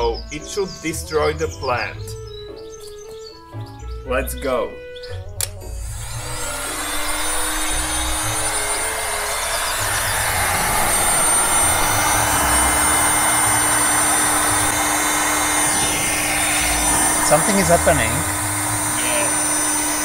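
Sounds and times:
hot air blower rushing: 5.6 - 20.0.

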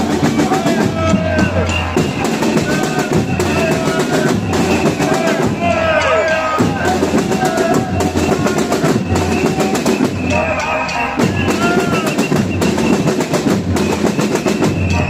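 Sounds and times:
fast drumming: 0.0 - 15.0.

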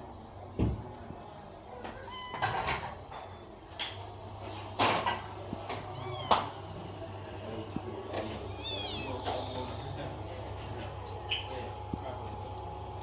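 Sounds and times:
kitten mewing: 5.8 - 6.7, 8.4 - 9.9.

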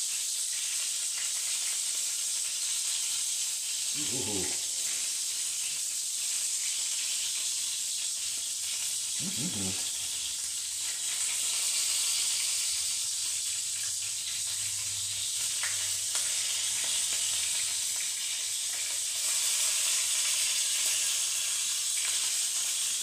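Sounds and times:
burger patties sizzling in pan: 0.0 - 23.0.

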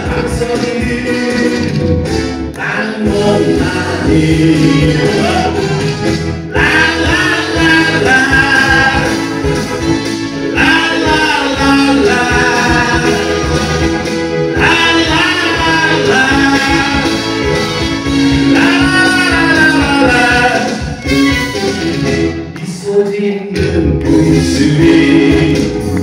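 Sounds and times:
man singing into a microphone: 0.0 - 1.9, 2.6 - 5.8, 6.5 - 9.3, 10.5 - 13.9, 14.5 - 17.5, 18.4 - 21.0, 22.6 - 26.0
instrumental accompaniment: 0.0 - 22.8.

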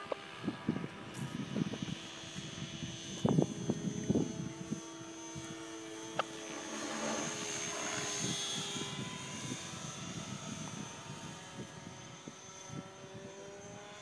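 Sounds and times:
model aircraft motor: 0.0 - 14.0
rushing of passing plane: 5.9 - 9.8.

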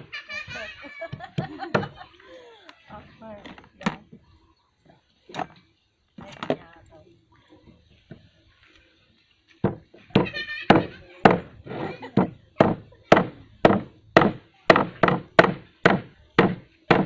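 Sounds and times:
dull knocks on wooden board: 9.6 - 11.5, 12.2 - 17.0.

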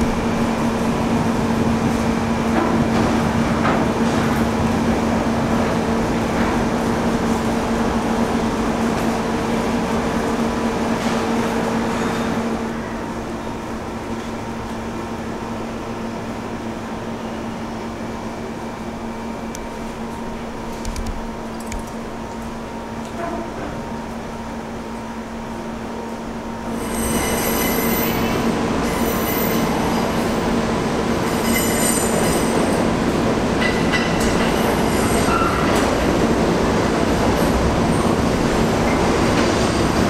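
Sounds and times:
low mechanical hum: 0.0 - 26.7.

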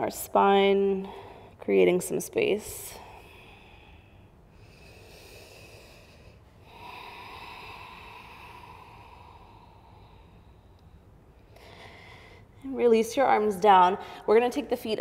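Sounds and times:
person breathing slowly: 2.9 - 12.6.

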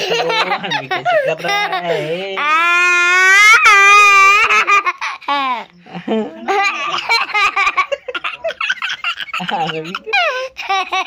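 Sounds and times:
child giggling: 0.0 - 11.0
child squealing: 2.4 - 5.6.

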